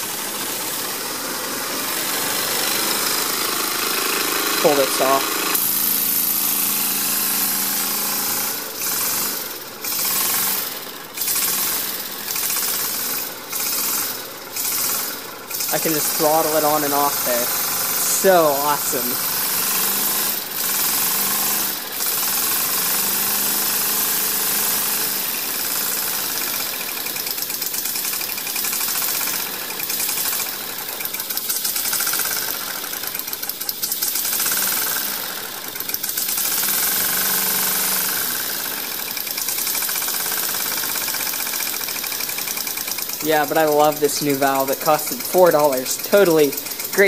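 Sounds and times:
steam engine chuffing: 0.0s - 47.0s.

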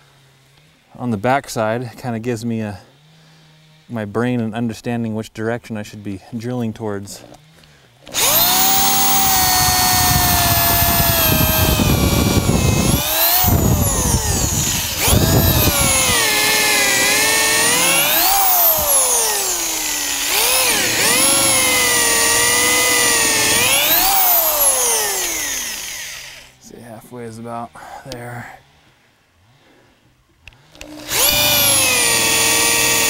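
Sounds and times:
drill bit grinding in wood: 8.0s - 26.6s, 30.7s - 33.0s
electric drill motor whine: 8.0s - 26.6s, 30.7s - 33.0s.

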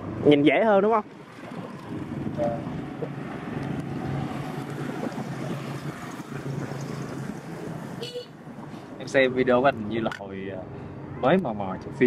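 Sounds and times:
vehicle engine humming: 0.0s - 12.0s
wind rumble on microphone: 1.1s - 8.7s.

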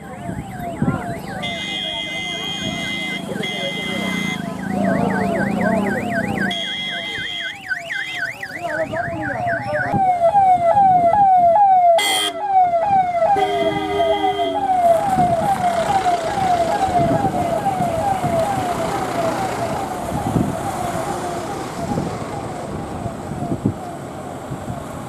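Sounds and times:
police sirens: 0.0s - 25.0s
vehicle horn blast: 1.4s - 4.4s, 6.5s - 7.5s, 12.0s - 12.4s, 13.4s - 14.6s.

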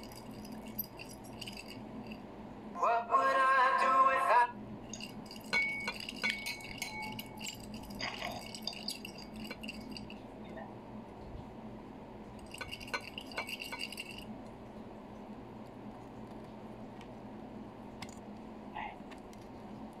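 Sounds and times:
fork clinking on a plate: 4.9s - 10.0s.

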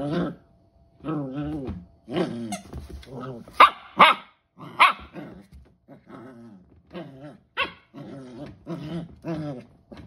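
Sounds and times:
puppy growling and grumbling: 0.0s - 3.6s, 4.5s - 10.0s
high puppy barks: 3.6s - 5.2s.

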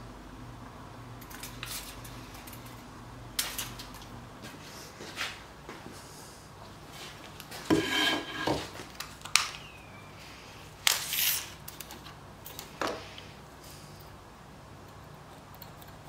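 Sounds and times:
tape measure blade pulled out: 10.9s - 11.6s.

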